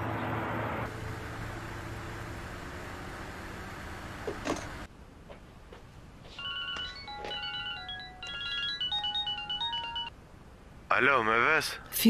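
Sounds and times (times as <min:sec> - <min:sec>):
smartphone ringtone: 0:06.3 - 0:10.1.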